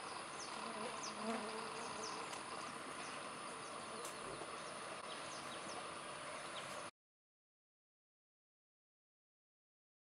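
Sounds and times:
insects buzzing: 0:00.0 - 0:06.9.

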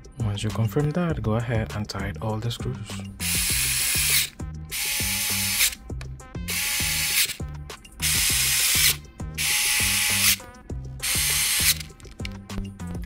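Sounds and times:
background music with beat: 0:00.0 - 0:13.0
electric screwdriver whirring: 0:03.2 - 0:05.8, 0:06.5 - 0:07.4, 0:08.0 - 0:10.4, 0:11.0 - 0:12.0.

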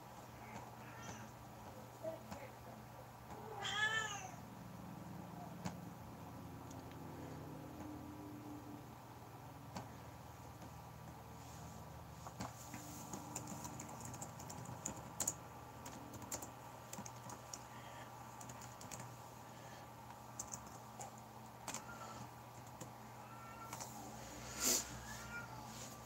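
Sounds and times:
keyboard typing clicks: 0:13.1 - 0:17.6, 0:18.4 - 0:19.1, 0:20.4 - 0:21.9, 0:22.5 - 0:22.9.

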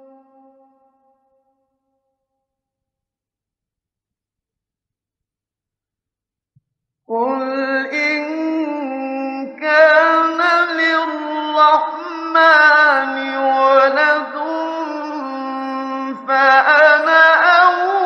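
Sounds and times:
man reciting melodically: 0:07.1 - 0:18.0.

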